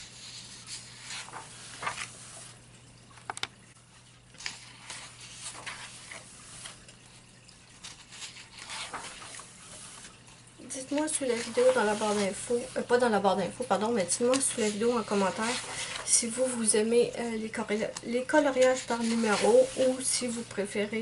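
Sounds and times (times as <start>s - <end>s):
paper pages rustling: 0.0s - 2.6s, 4.3s - 7.0s, 7.8s - 10.2s, 10.8s - 13.0s, 14.1s - 16.6s, 17.9s - 20.5s.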